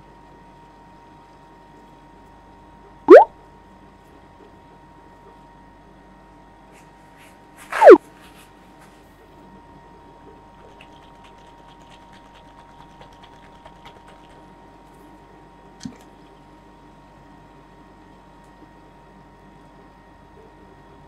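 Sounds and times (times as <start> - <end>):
faint machine hum: 0.0 - 21.0
liquid sloshing in shaken bottle: 10.6 - 14.4.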